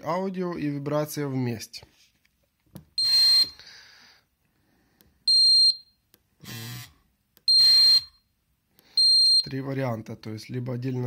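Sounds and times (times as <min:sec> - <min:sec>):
short high-pitched beeps: 0:03.0 - 0:03.6, 0:07.5 - 0:08.2.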